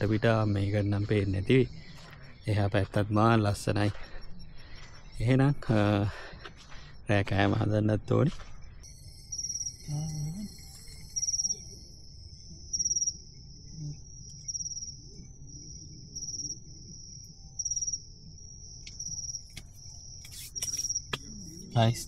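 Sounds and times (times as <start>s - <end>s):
high-pitched insect chorus: 0.0s - 22.0s
insect pulsed high trills: 8.8s - 22.0s.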